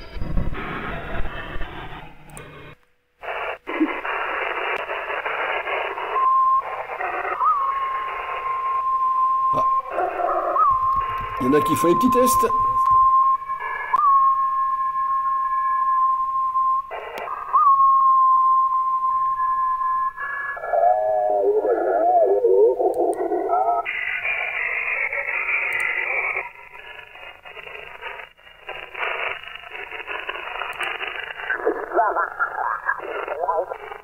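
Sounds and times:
radio static hiss: 0.0 - 14.0, 16.7 - 34.0
warbling mistuned radio voice: 3.2 - 8.5, 9.5 - 12.9, 20.3 - 28.2, 28.9 - 34.0
radio test carrier whistle: 3.2 - 22.8, 23.7 - 34.0.

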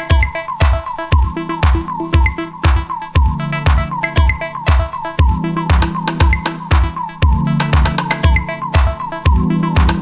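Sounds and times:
electronic beat with bass drum: 0.0 - 10.0
sustained synth notes: 0.0 - 10.0.

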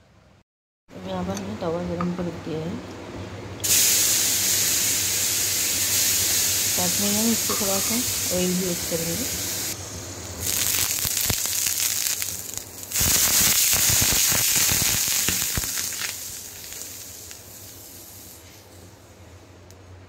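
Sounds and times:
water sizzling on hot griddle: 3.6 - 18.7.

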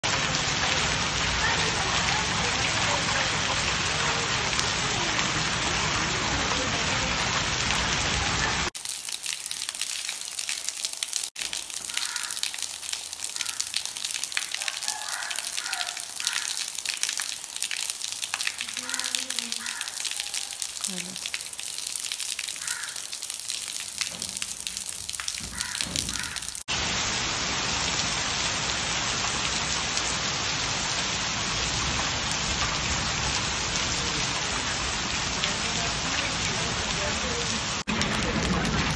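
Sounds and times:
heavy rain and hail: 0.0 - 38.9
drops striking wet stone tiles: 9.2 - 26.7.

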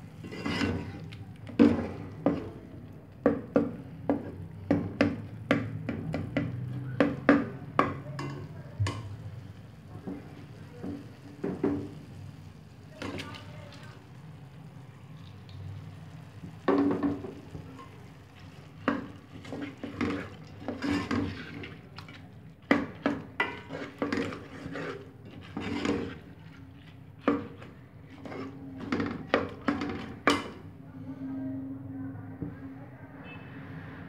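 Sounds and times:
metal ladle scraping a pot: 0.2 - 2.5, 18.8 - 30.6.

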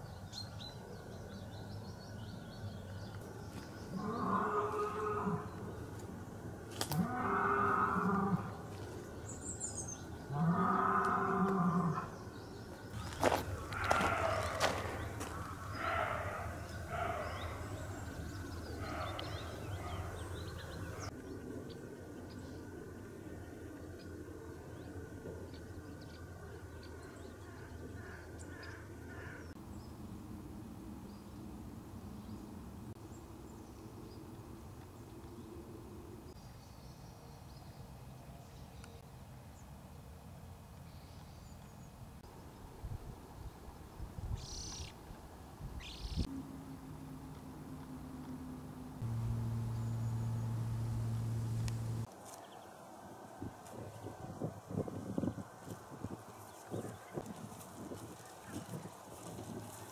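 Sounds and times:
faint high bird calls: 7.0 - 21.3, 44.3 - 45.0, 45.8 - 46.3
deer barking: 13.3 - 18.0, 18.7 - 21.0
steady low rumble: 46.0 - 52.1.

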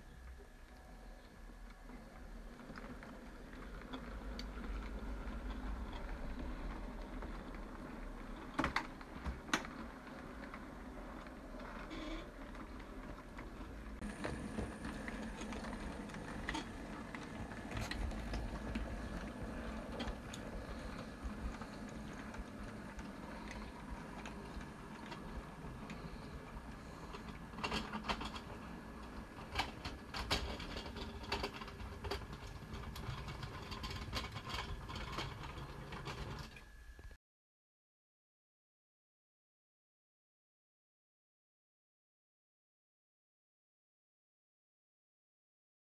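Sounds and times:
wheels clicking on rail: 1.6 - 36.7.

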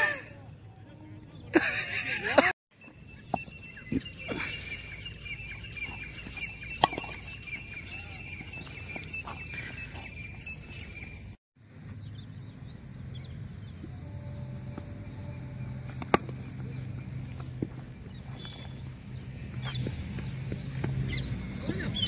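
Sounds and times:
faint bird chirps: 2.8 - 11.4
cricket bat striking ball: 16.0 - 16.6.

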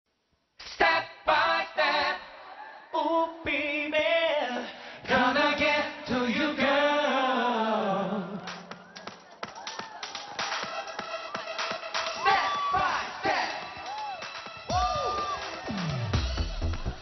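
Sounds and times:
male vocal group singing a cappella: 0.7 - 8.8, 12.2 - 13.7.

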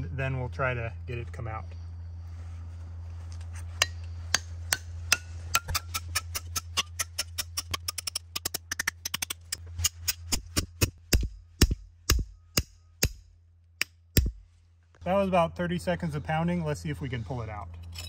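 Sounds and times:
hammer striking steel piton: 3.8 - 14.4.

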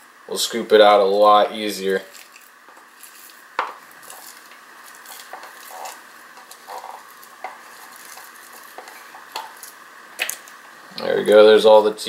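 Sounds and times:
spatula scraping container: 4.0 - 9.5.

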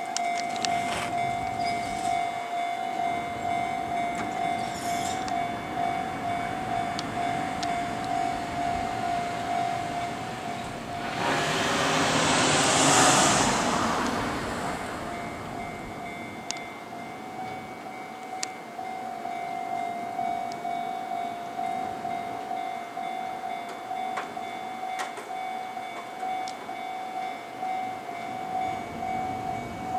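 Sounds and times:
level crossing bell ringing: 0.0 - 11.2
electric train passing: 0.0 - 29.9.

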